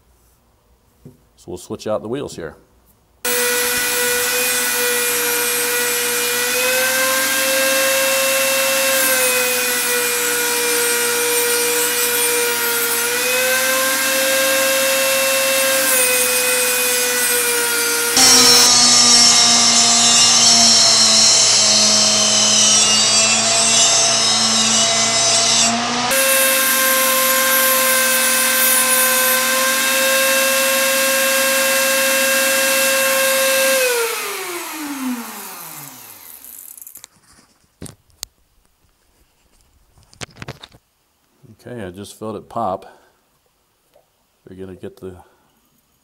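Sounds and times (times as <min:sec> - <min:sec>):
rotary tool cutting metal: 0:03.3 - 0:37.1.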